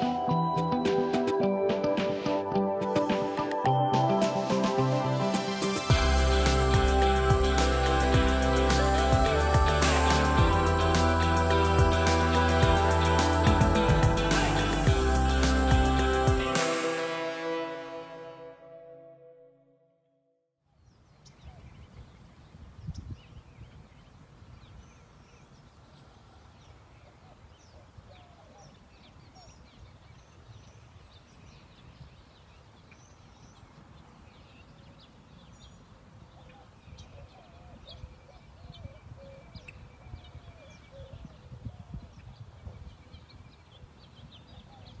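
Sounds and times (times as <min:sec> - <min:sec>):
low rumble: 0:05.9 - 0:16.5
small birds chirping: 0:20.8 - 0:45.0.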